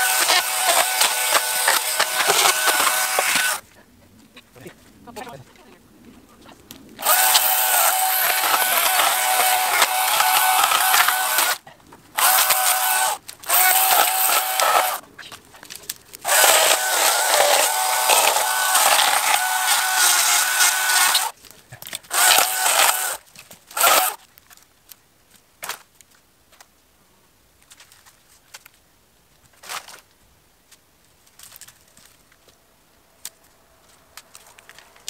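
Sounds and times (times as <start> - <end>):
electric chainsaw cutting branches: 0.0 - 3.6, 7.0 - 11.6, 12.2 - 15.0, 16.2 - 21.4, 22.1 - 24.2.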